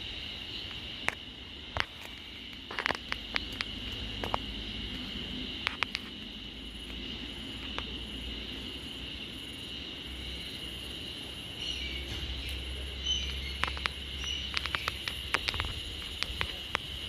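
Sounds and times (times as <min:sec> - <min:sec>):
insects singing drone: 0:00.0 - 0:17.0
rapid sharp ticks: 0:13.2 - 0:17.0.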